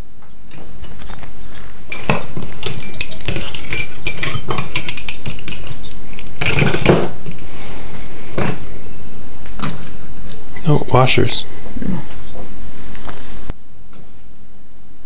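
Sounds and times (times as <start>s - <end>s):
metal clatter: 1.9s - 5.8s
small metal parts clinking: 1.9s - 7.1s.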